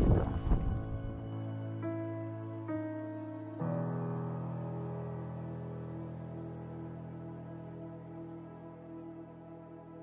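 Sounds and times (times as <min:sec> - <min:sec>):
slow ambient music held chords: 0:00.0 - 0:10.0.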